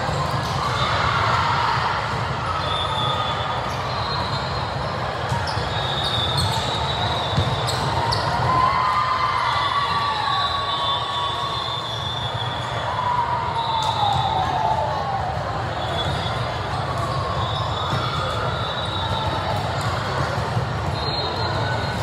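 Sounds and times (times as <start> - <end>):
crowd chatter: 0.0 - 22.0
sneakers squeaking on court: 2.2 - 8.5.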